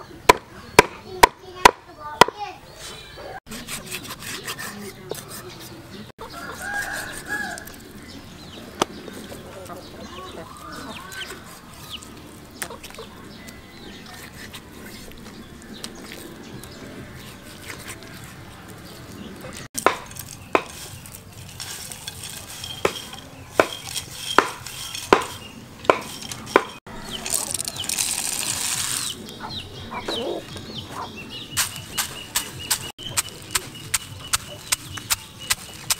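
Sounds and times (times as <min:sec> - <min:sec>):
peanuts cracking: 0:15.2 - 0:29.4, 0:31.6 - 0:35.9
peanuts rattling in mortar: 0:19.8 - 0:25.4, 0:27.2 - 0:29.2
knife on wooden board: 0:19.8 - 0:26.8.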